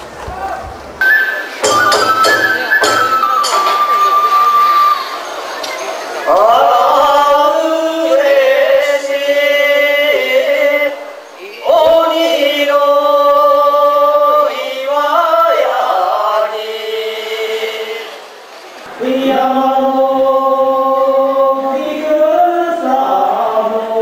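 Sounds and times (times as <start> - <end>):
male voices chanting in unison: 6.3 - 18.3.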